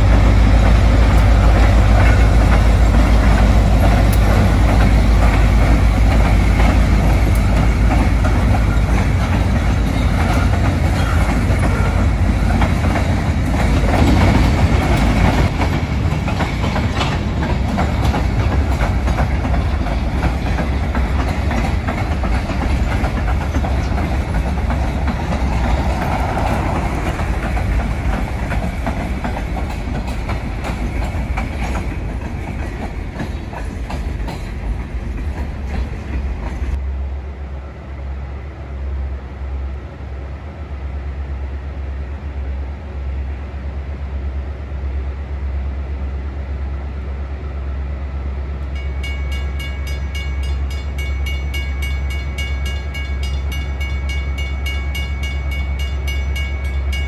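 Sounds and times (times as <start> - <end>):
train wheels clacking on rail joints: 0.0 - 36.8
diesel locomotive engine: 0.0 - 57.0.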